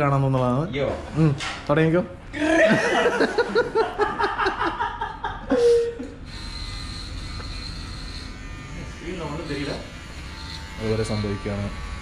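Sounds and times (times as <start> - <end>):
men laughing: 2.4 - 6.2
electric hair clipper buzzing: 6.1 - 12.0.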